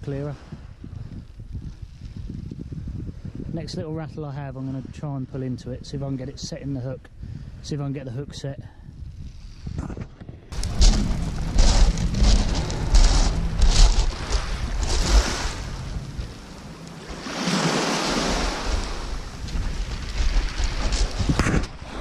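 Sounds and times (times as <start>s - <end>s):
wind buffeting microphone: 0.0s - 22.0s
waves washing onto shingle: 10.6s - 21.4s.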